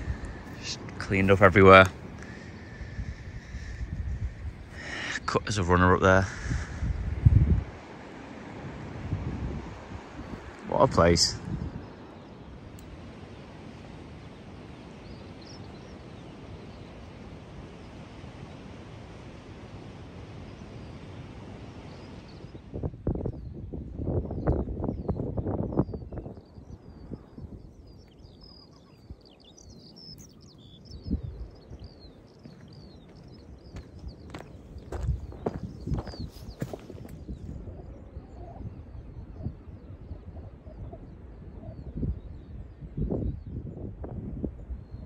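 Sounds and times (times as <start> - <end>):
faint bird chirps: 0.0 - 7.3, 24.2 - 43.8
low wind rumble: 0.0 - 45.0
open-air background noise: 0.0 - 45.0.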